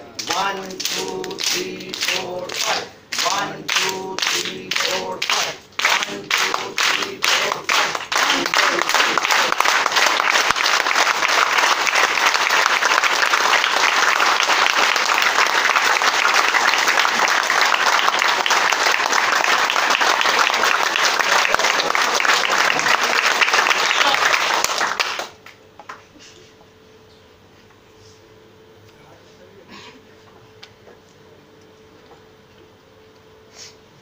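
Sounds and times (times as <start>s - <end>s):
faint steady hum: 0.0s - 34.0s
group clapping rapidly: 0.2s - 26.0s.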